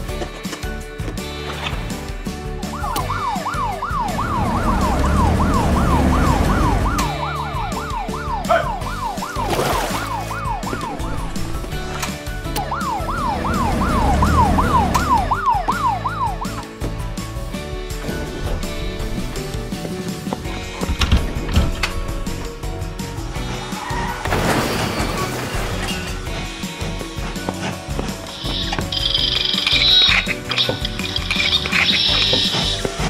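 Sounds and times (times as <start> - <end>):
toy siren wailing: 2.7 - 9.4, 12.6 - 16.4, 28.4 - 33.0.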